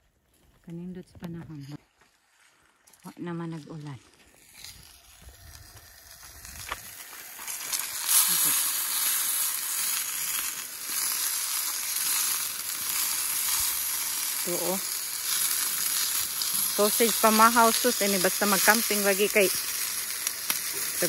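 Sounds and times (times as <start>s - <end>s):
sausages sizzling in a frying pan: 4.3s - 21.0s.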